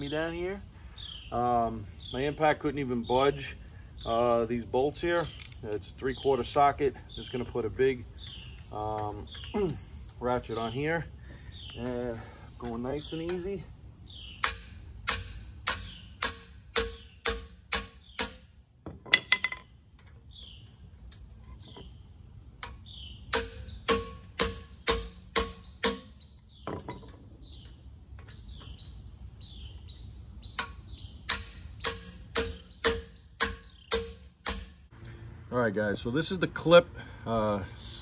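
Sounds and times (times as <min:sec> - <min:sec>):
insects buzzing: 0:00.0 - 0:38.0
sledgehammer striking metal ratchet: 0:14.4 - 0:18.6, 0:22.6 - 0:26.2, 0:30.6 - 0:34.9.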